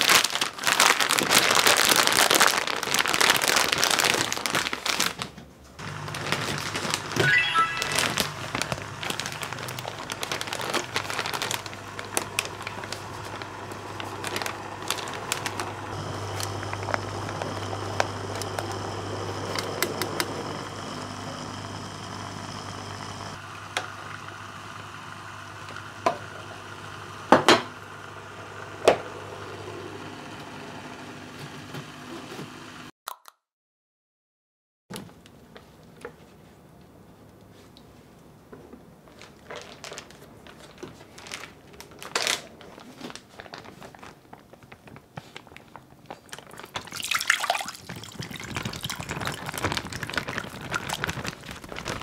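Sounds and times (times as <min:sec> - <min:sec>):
plastic bag crinkling: 0:00.0 - 0:18.8, 0:39.0 - 0:52.0
immersion circulator humming: 0:05.8 - 0:32.9, 0:44.2 - 0:52.0.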